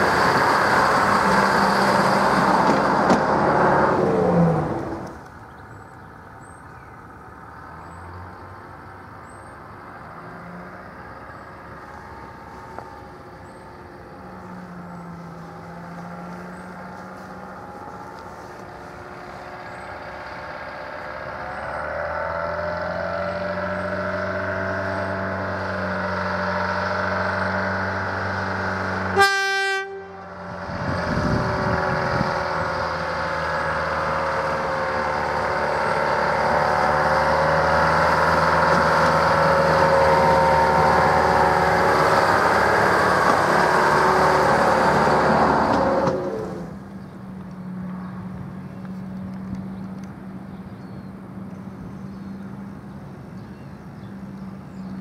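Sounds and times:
diesel locomotive engine running: 0.0s - 7.7s, 8.5s - 55.0s
locomotive horn toot: 29.0s - 30.6s.

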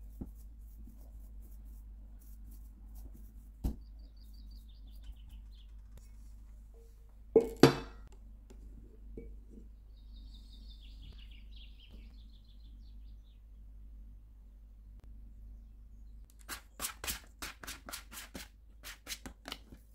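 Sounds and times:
birds chirping faintly: 0.2s - 6.5s, 9.0s - 16.8s.

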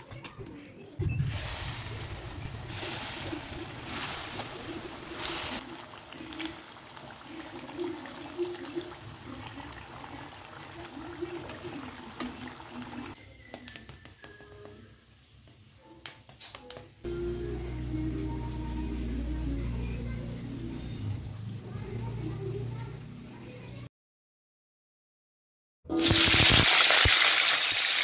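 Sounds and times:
fritters sizzling in hot oil: 1.2s - 13.8s, 25.9s - 28.0s.

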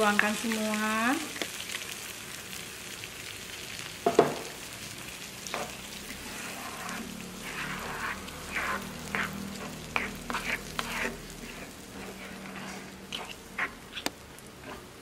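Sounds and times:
egg sizzling in frying pan: 0.0s - 15.0s
sharp knock on pan: 4.1s - 4.5s
spatula stirring: 5.4s - 15.0s.

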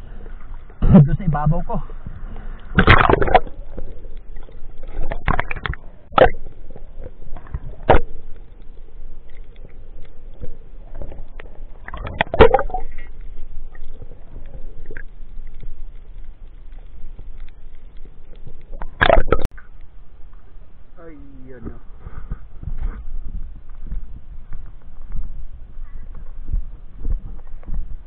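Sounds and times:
low underwater rumble: 0.0s - 28.0s.

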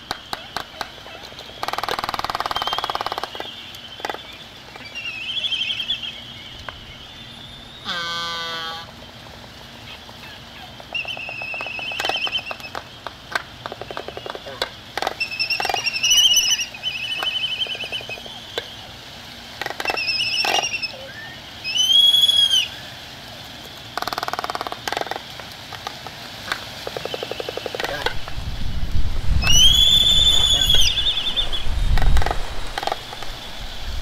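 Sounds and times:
bird whistled calls: 0.0s - 8.9s, 9.9s - 13.0s, 14.0s - 18.9s, 19.8s - 22.9s, 29.4s - 33.6s.

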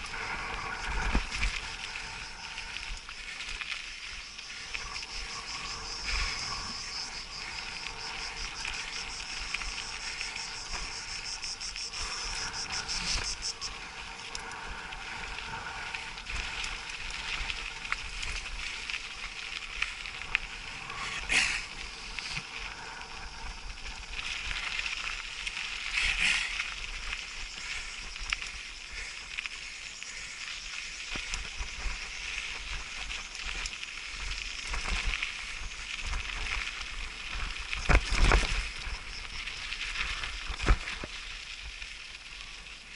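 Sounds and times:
insects chirring: 0.0s - 42.9s
mountain bike on gravel trail: 0.0s - 42.9s
scraping hisses: 20.6s - 24.0s.

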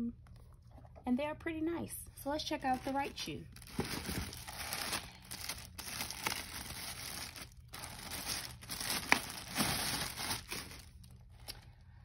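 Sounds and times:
plastic bag crinkling: 2.6s - 11.6s.

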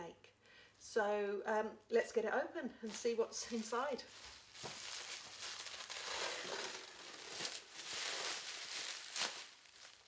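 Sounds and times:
plastic wrapping rustling: 2.9s - 10.0s
plastic ripping: 3.5s - 10.0s.

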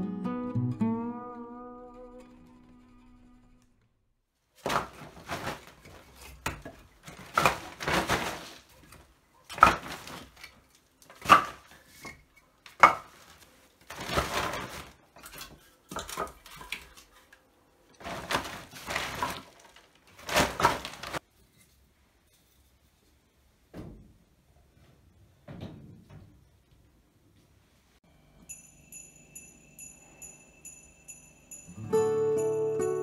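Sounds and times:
rustling scraping noises: 4.6s - 10.8s, 11.7s - 15.8s, 18.0s - 23.4s.

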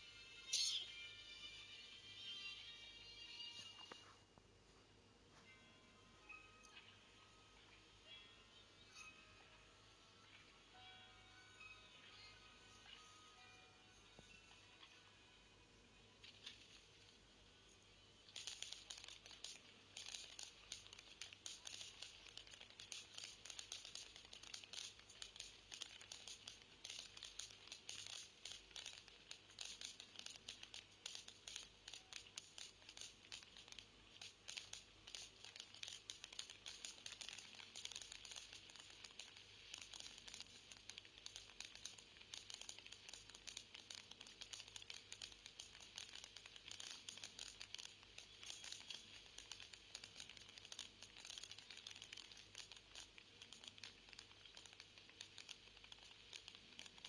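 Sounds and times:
fireworks crackling: 18.3s - 57.0s.

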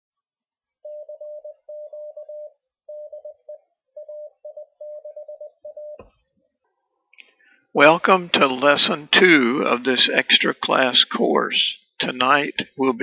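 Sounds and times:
morse code tone: 0.8s - 6.1s.

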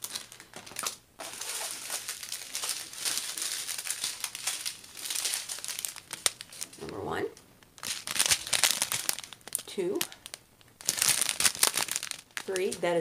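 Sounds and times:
plastic bags crinkling: 0.0s - 6.9s, 7.6s - 13.0s.

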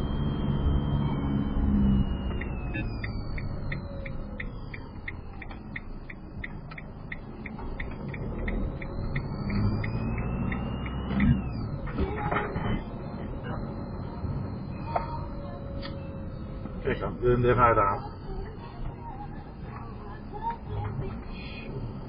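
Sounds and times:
high whine: 0.0s - 18.9s
low engine rumble: 0.0s - 22.0s
turn signal clicking: 2.1s - 12.2s.

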